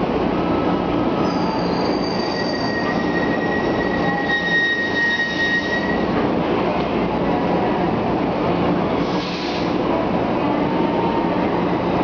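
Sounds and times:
busy metro platform noise: 0.0 - 12.0
metro train wheels squealing: 1.2 - 6.2, 9.0 - 9.8.

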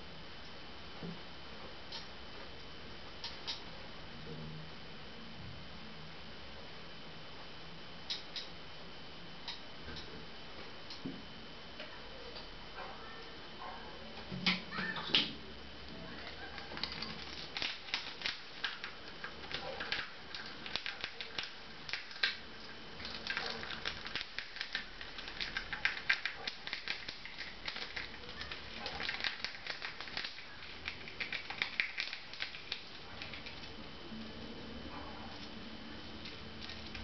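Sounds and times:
chipmunk gnawing food: 16.1 - 33.9, 35.4 - 37.0.

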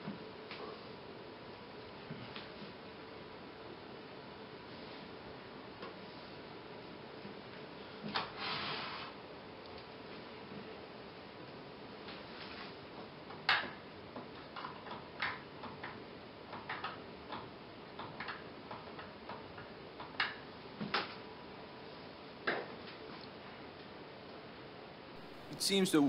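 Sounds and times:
faint steady hiss: 25.1 - 26.0.

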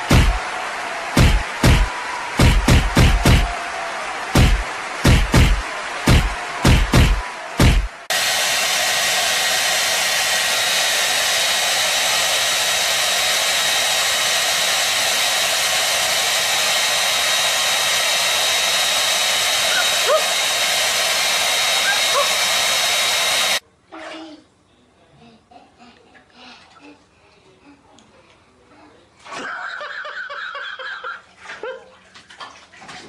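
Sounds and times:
hair dryer running: 0.0 - 23.6.

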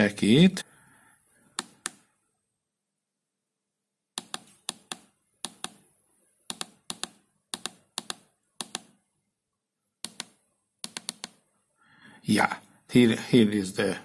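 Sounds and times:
push-buttons clicking: 4.2 - 5.8, 6.5 - 8.9, 10.0 - 11.4.

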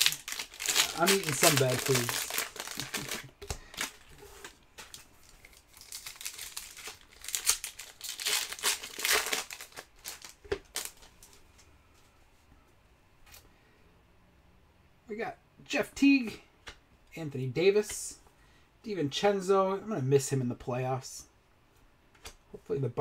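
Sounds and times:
foil wrapper crinkling and tearing: 0.0 - 11.4.

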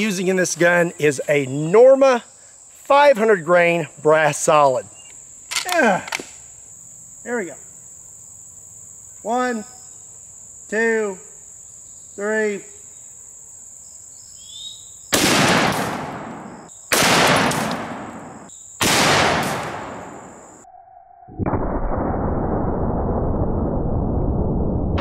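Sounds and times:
high insect drone: 0.0 - 20.8
person calling out: 5.6 - 6.2
rifle shots: 15.1 - 20.4.

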